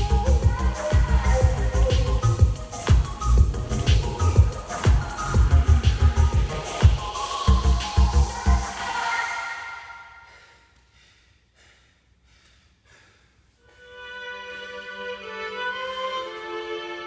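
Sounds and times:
beat-driven music track: 0:00.0 - 0:10.1
slow violin-like held notes: 0:13.7 - 0:17.0.

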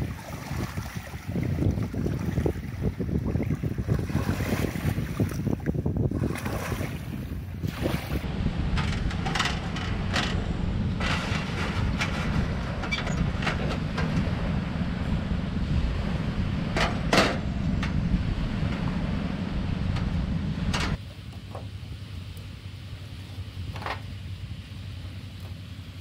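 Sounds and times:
wind noise on microphone: 0:00.0 - 0:21.0
metal clanks and scrapes: 0:08.7 - 0:14.4.

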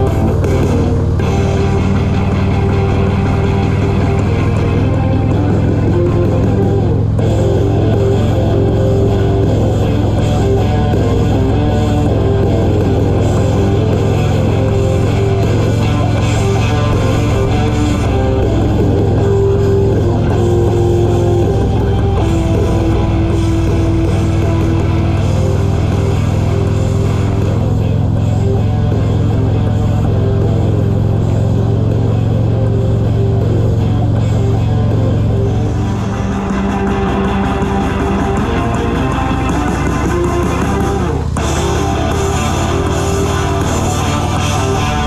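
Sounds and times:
rock music with guitar: 0:00.0 - 0:45.0
steady low drone: 0:00.0 - 0:45.0.

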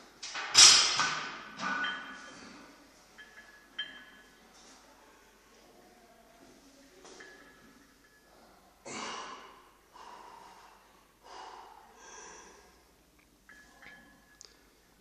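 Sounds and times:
person breathing hard: 0:08.9 - 0:12.9.

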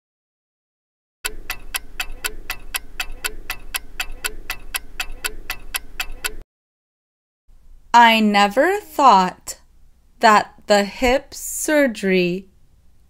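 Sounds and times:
clock ticking: 0:01.2 - 0:06.4.

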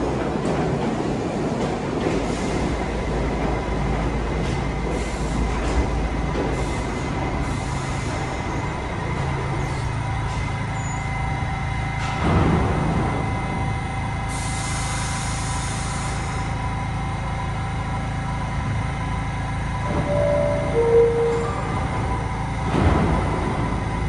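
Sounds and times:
wheels rumbling on rails: 0:00.0 - 0:24.0
thin high tone: 0:19.9 - 0:22.6.

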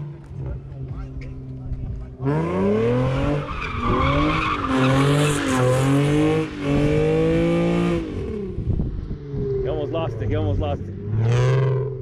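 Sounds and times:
car engine at high revs: 0:00.0 - 0:12.0
tyres squealing on asphalt: 0:02.2 - 0:06.6.

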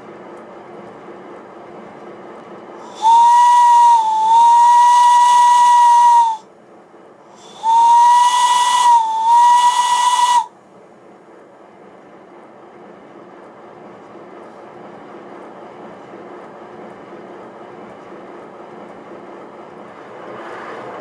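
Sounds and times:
steam whistle blasts: 0:02.9 - 0:06.4, 0:07.4 - 0:10.5
air hiss: 0:07.3 - 0:10.5.

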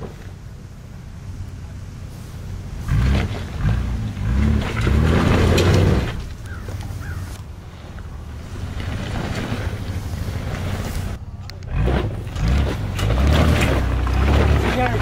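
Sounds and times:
engine revving hard: 0:02.8 - 0:06.2, 0:11.7 - 0:15.0.

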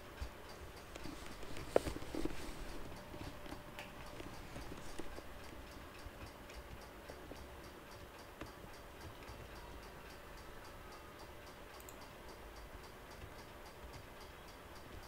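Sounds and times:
regular ticking: 0:00.0 - 0:15.0
steady hum: 0:00.0 - 0:15.0.

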